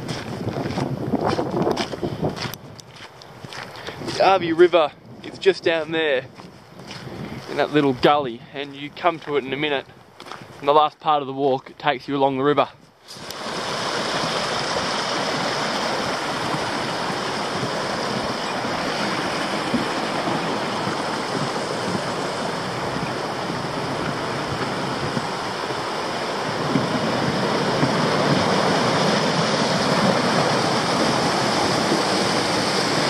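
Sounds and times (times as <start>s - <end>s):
river rushing over rocks: 13.1s - 33.0s.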